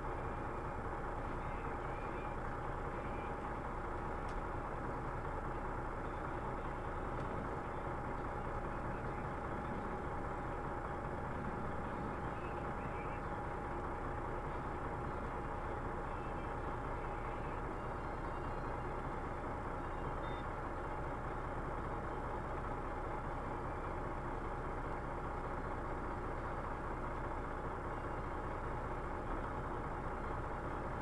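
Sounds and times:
diesel truck engine idling: 0.0s - 31.0s.

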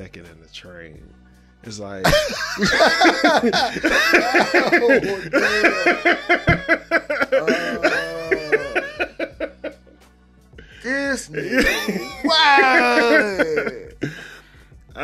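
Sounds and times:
loud hearty laughter: 2.1s - 9.9s, 11.4s - 14.2s.

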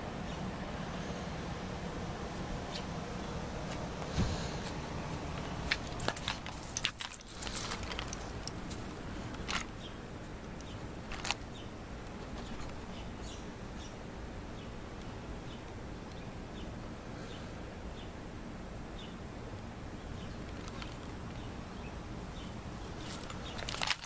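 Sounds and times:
outdoor hush: 0.0s - 24.0s
metal chain collar clinking: 5.7s - 9.7s, 23.0s - 24.0s.

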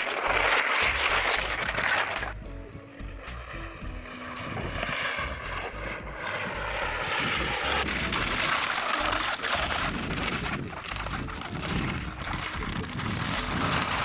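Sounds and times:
wind on microphone: 0.3s - 14.0s.

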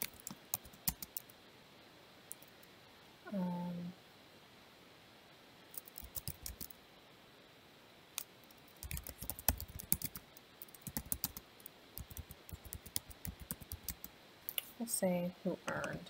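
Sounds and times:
computer keyboard typing: 0.0s - 1.3s, 5.7s - 6.7s, 8.6s - 14.1s.

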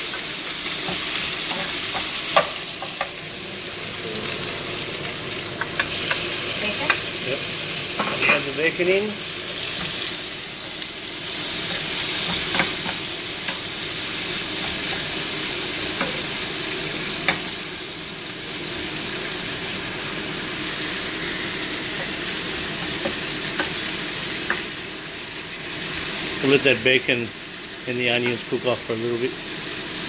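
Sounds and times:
food sizzling in a frying pan: 0.0s - 30.0s.

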